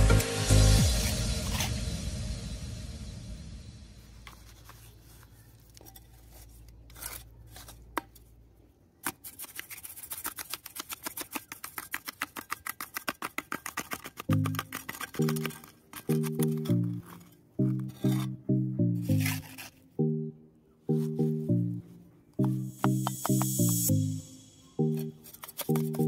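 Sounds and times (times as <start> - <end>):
music: 0.0 - 4.1, 14.3 - 26.0
trowel tapping concrete: 9.0 - 18.3, 22.4 - 23.9, 24.8 - 26.0.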